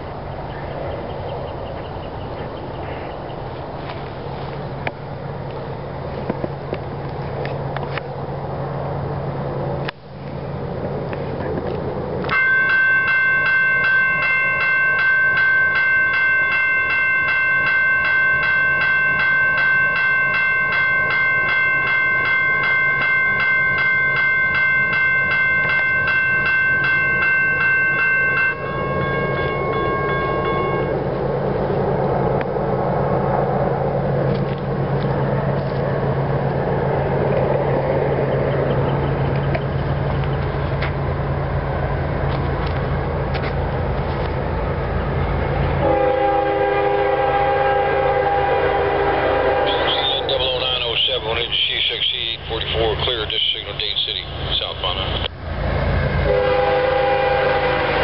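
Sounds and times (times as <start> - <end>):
grade-crossing bell ringing: 12.2 - 31.7, 45.4 - 55.3.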